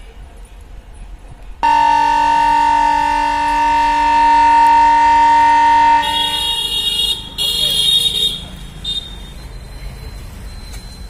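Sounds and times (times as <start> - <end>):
faint higher horn tone: 1.6 - 6.8
locomotive horn blast: 1.6 - 9.1.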